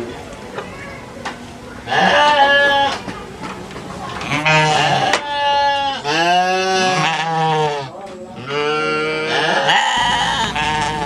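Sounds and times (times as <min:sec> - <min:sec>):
sheep bleating: 0:04.3 - 0:11.0.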